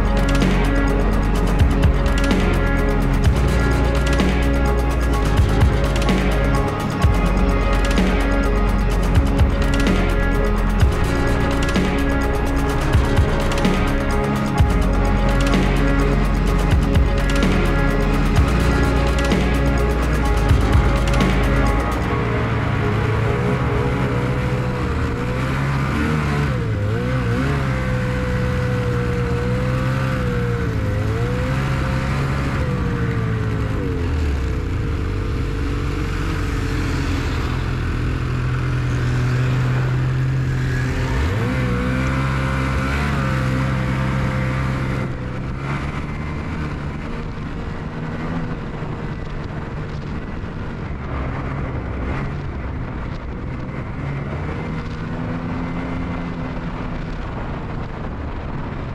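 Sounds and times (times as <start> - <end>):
snowmobile engine revving: 0.0 - 58.8
snowmobiles passing: 0.0 - 58.9.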